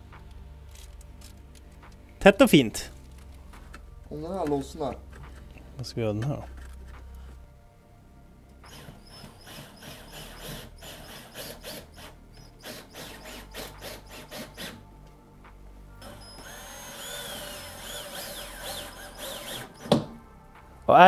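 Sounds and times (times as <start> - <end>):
background music: 0.0 - 21.0
cordless drill driving screws: 8.7 - 14.8, 16.0 - 20.1.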